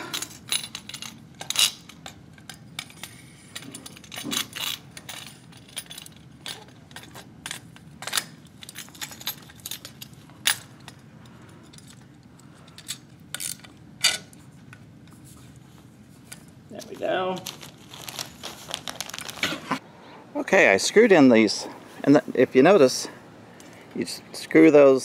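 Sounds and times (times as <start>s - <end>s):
metallic clicks and clinks: 0.0s - 14.4s.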